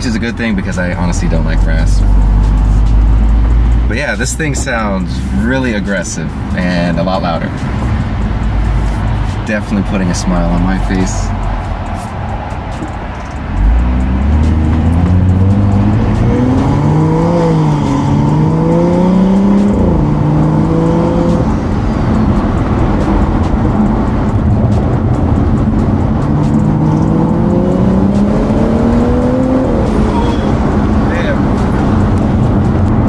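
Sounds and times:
car engine accelerating: 0:00.0 - 0:33.0.

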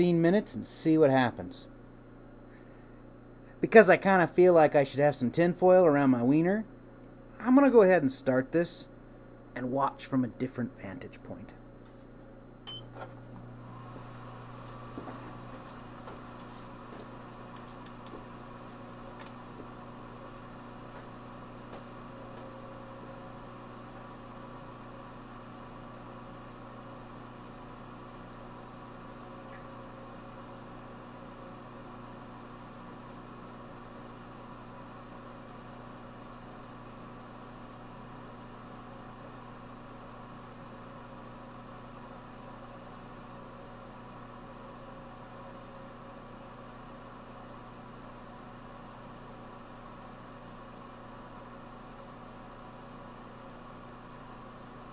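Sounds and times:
microwave oven humming: 0:00.0 - 0:54.9.

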